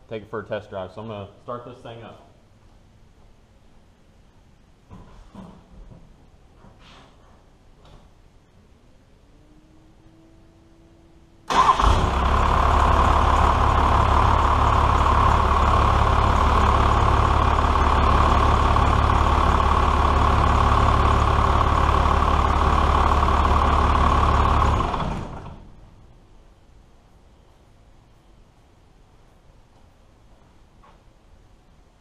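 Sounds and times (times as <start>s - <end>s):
diesel engine starting and idling: 11.4s - 26.1s.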